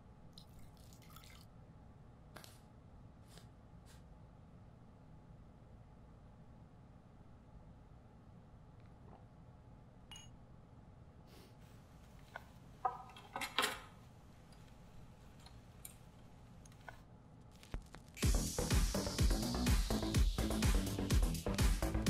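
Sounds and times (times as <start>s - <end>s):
music from record player: 17.6s - 22.0s.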